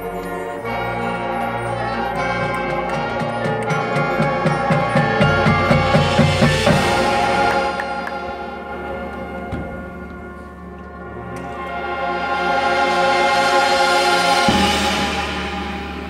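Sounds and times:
brass chords: 0:00.0 - 0:16.0
steady drum beat: 0:02.7 - 0:08.5.

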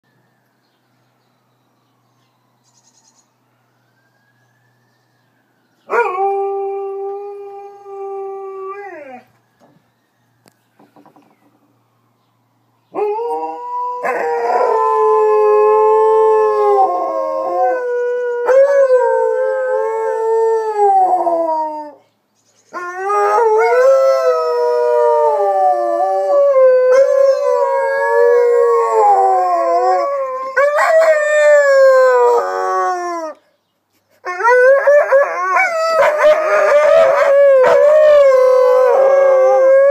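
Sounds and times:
siren wail: 0:00.1 - 0:22.0, 0:22.7 - 0:33.4, 0:34.3 - 0:39.9
dogs howling: 0:13.0 - 0:22.0, 0:22.8 - 0:33.4, 0:34.3 - 0:39.9.

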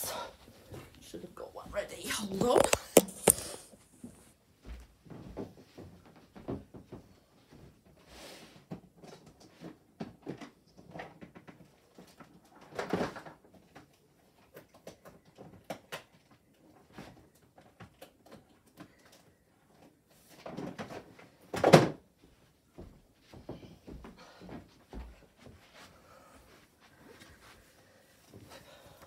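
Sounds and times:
person rummaging through things: 0:02.0 - 0:04.3.

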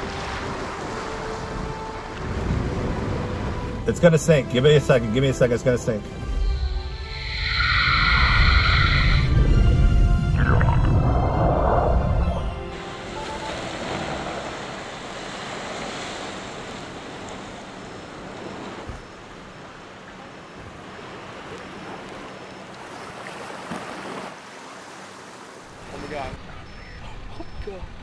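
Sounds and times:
water churning and splashing: 0:07.0 - 0:26.2.

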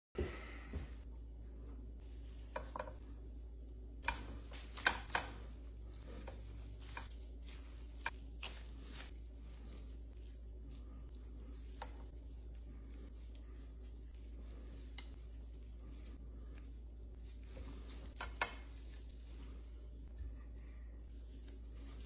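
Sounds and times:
low steady hum: 0:00.2 - 0:22.0.

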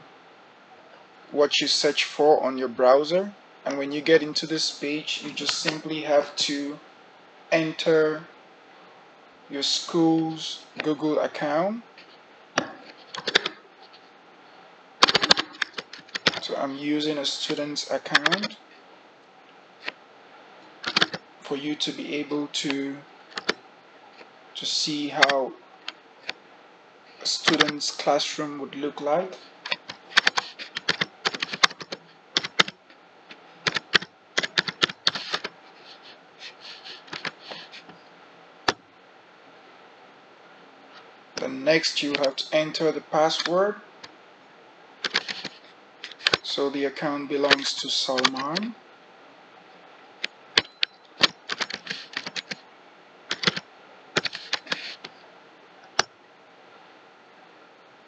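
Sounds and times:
typing on keyboard: 0:12.6 - 0:13.6, 0:15.0 - 0:16.4, 0:18.2 - 0:18.6, 0:20.8 - 0:21.2, 0:23.3 - 0:23.6, 0:29.7 - 0:32.8, 0:33.6 - 0:36.0, 0:45.0 - 0:46.4, 0:50.6 - 0:52.6, 0:53.3 - 0:53.6, 0:54.2 - 0:55.1.

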